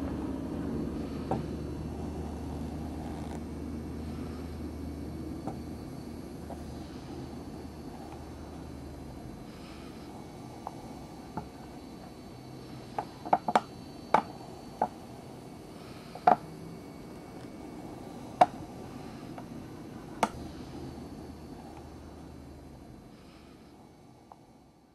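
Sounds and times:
steady low hiss: 0:00.0 - 0:24.9.

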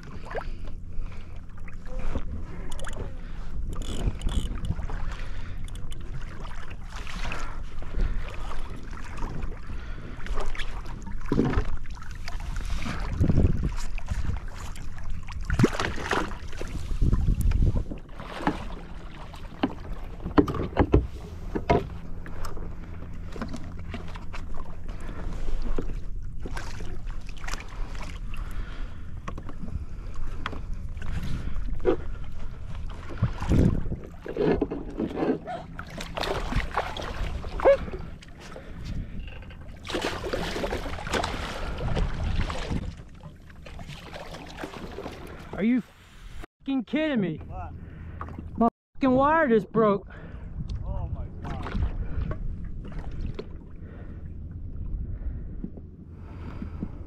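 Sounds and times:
water splashing against kayak hull: 0:00.0 - 0:46.4, 0:47.4 - 0:48.7, 0:50.2 - 0:54.2
wind buffeting microphone: 0:02.2 - 0:06.2, 0:12.4 - 0:18.1, 0:29.6 - 0:39.8, 0:41.3 - 0:43.1, 0:50.1 - 0:57.0.

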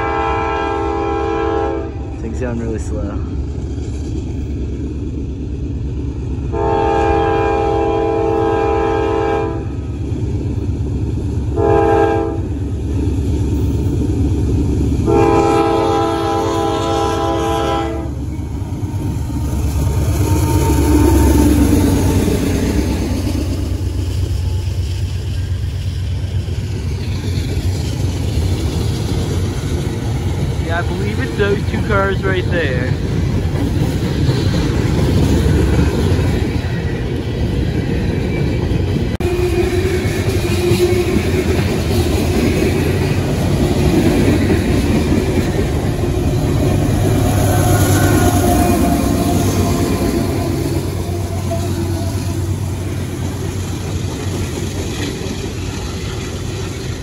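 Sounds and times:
locomotive air horn blasts: 0:00.0 - 0:02.0, 0:06.5 - 0:09.7, 0:11.6 - 0:12.5, 0:15.0 - 0:18.2, 0:39.2 - 0:41.2, 0:47.3 - 0:52.6
locomotive rumbling past: 0:00.0 - 0:57.0
railcars rolling by: 0:00.0 - 0:57.0.

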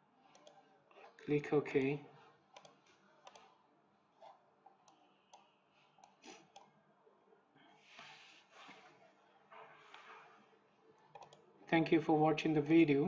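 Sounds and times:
faint computer mouse clicks: 0:00.3 - 0:00.6, 0:02.5 - 0:03.6, 0:11.1 - 0:11.4.

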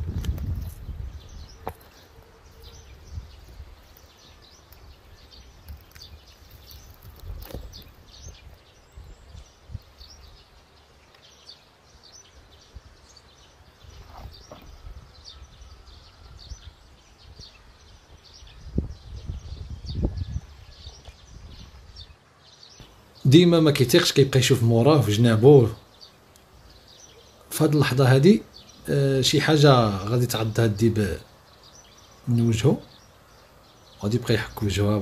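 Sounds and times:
thumps and rustles on dry ground: 0:00.0 - 0:02.1, 0:05.7 - 0:08.5, 0:13.9 - 0:15.0
small birds chirping: 0:00.0 - 0:35.0.

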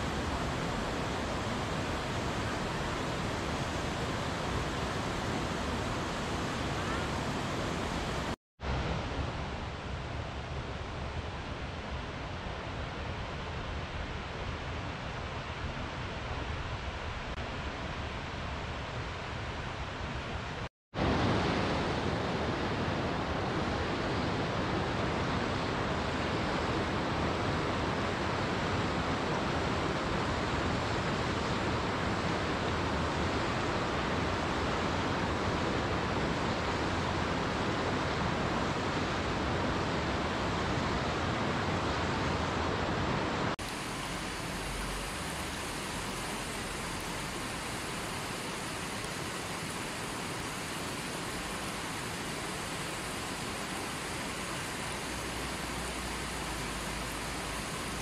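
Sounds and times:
river rushing over stones: 0:00.0 - 0:08.8, 0:21.0 - 0:58.0.

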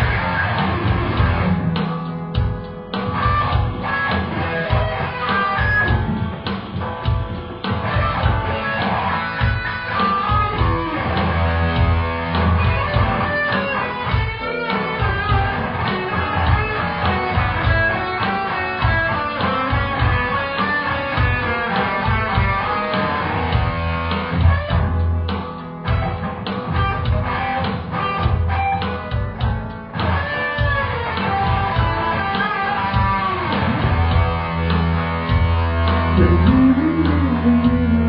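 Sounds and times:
electric guitar blues jam: 0:00.0 - 0:38.0.

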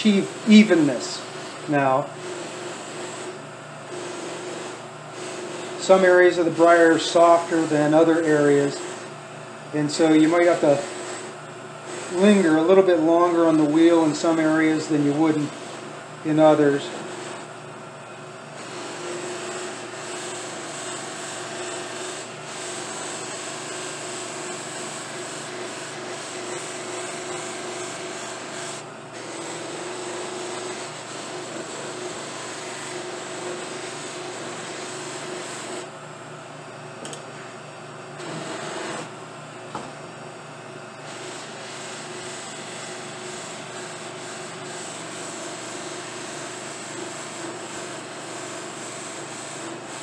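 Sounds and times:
wood rubbing on spinning wheel: 0:00.0 - 0:09.1, 0:09.7 - 0:17.5, 0:18.6 - 0:35.9, 0:38.2 - 0:39.1, 0:41.0 - 0:50.0
sharp click: 0:37.0 - 0:37.3.

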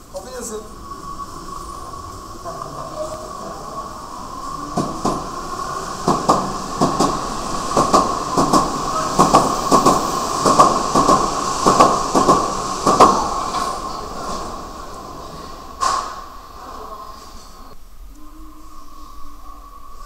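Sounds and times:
steady high whine: 0:00.0 - 0:20.0
train wheels clattering: 0:02.4 - 0:16.4.

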